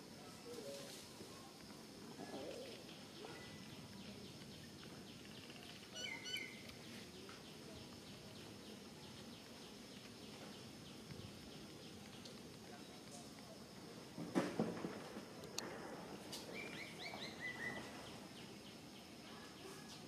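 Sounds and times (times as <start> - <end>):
faint forest ambience: 0.0 - 20.0
bird chirping: 2.4 - 13.2, 16.4 - 19.9.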